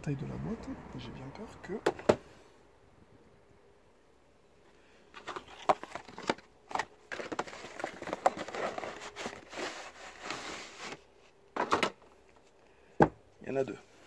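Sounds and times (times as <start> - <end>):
packaging crinkling and rustling: 5.1 - 12.0.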